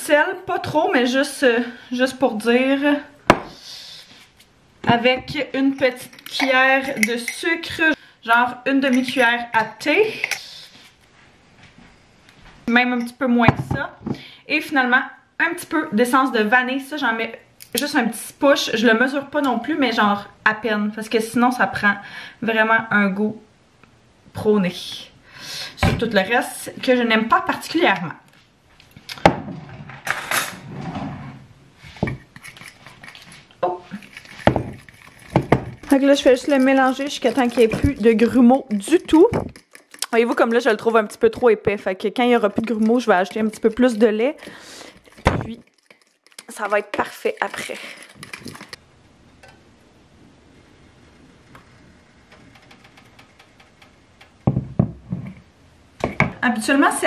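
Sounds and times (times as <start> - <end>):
plastic ladle scraping pan: 30.6 - 41.1, 42.4 - 48.8
fork clinking against a bowl: 39.5 - 40.4
loud knocks: 54.4 - 55.2.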